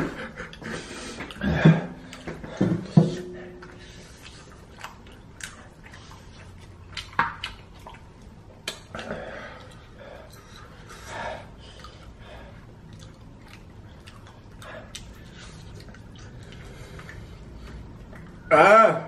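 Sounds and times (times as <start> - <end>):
wet chewing and lip smacks: 3.6 - 18.5.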